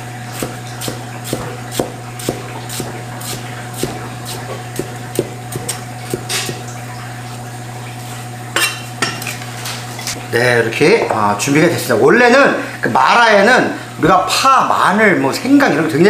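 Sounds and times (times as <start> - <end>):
steady low hum: 0.0 - 13.0
cleaver chopping on wooden block: 0.4 - 6.6.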